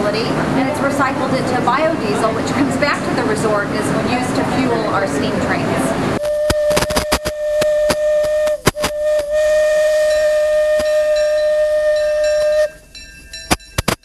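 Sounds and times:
steam locomotive whistle: 0:06.2 - 0:12.9.

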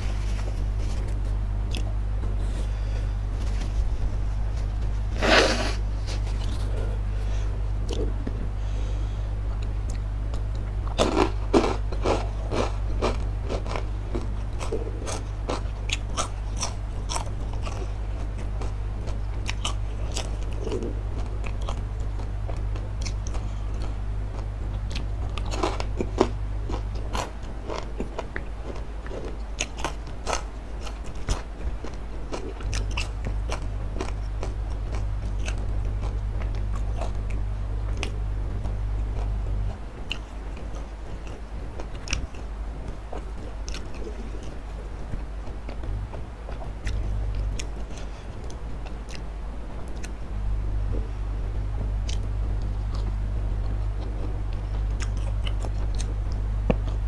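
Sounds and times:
crunching and chewing: 0:00.0 - 0:50.3, 0:52.0 - 0:57.0
steady low hum: 0:00.0 - 0:57.0.

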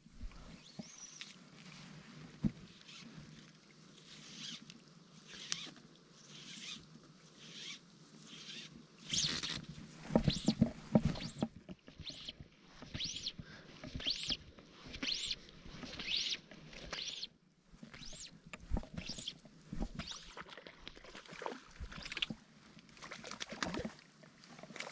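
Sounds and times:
fly line zipping through rod guides: 0:04.1 - 0:04.7, 0:05.3 - 0:06.8, 0:07.4 - 0:20.5
knocks and rustling handling rod: 0:09.4 - 0:17.2, 0:17.8 - 0:20.3.

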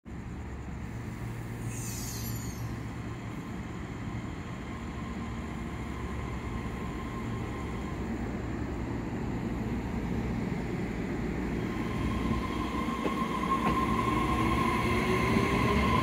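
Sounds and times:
train rumbling: 0:00.1 - 0:16.0.

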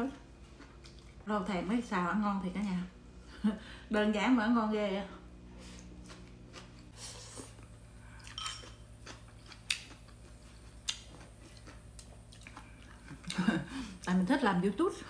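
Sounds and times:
person quietly chewing: 0:00.4 - 0:01.2, 0:05.6 - 0:14.2.

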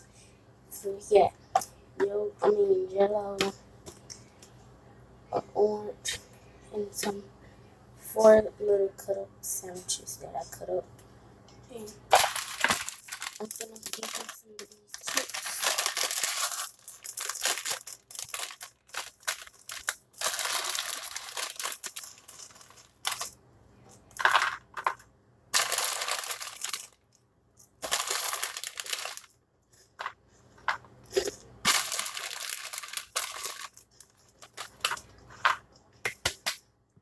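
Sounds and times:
snack bag crinkling: 0:12.1 - 0:23.4, 0:25.6 - 0:27.0, 0:27.6 - 0:29.3, 0:31.1 - 0:35.4
snacks rattling inside bag: 0:12.1 - 0:23.4, 0:25.6 - 0:27.0, 0:27.8 - 0:29.3, 0:31.2 - 0:35.4.

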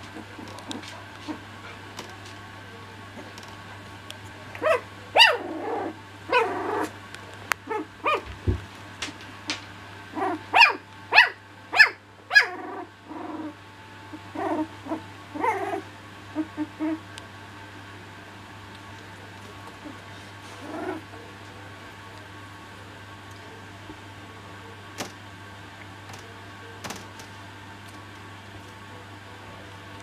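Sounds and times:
puppies growling: 0:00.0 - 0:01.9, 0:04.5 - 0:07.0, 0:07.6 - 0:08.4, 0:10.1 - 0:10.6, 0:12.3 - 0:17.2, 0:18.6 - 0:22.0
puppies yapping: 0:04.6 - 0:05.5.

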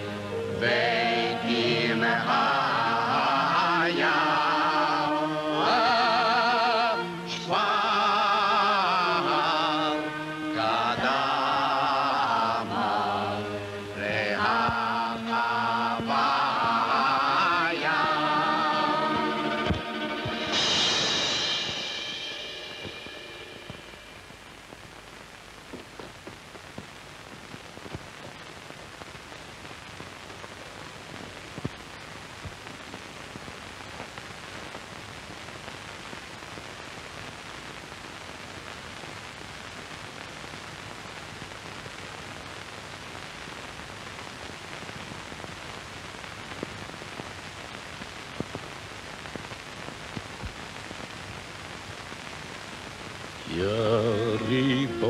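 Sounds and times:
film soundtrack surface hiss: 0:00.0 - 0:55.0
faint clicks and pops: 0:24.8 - 0:53.4.

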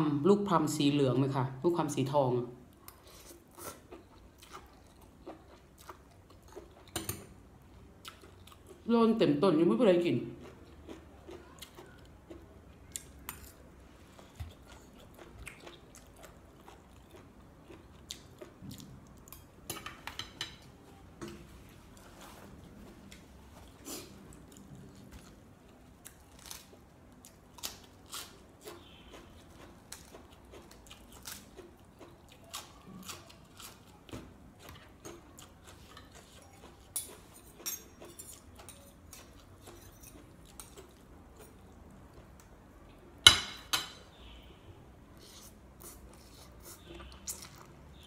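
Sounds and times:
chewing: 0:02.8 - 0:07.0, 0:10.4 - 0:19.4, 0:21.8 - 0:42.5.

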